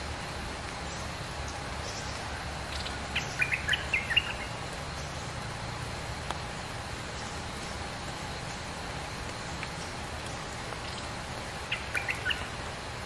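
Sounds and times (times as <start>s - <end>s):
rain falling: 0.0s - 13.0s.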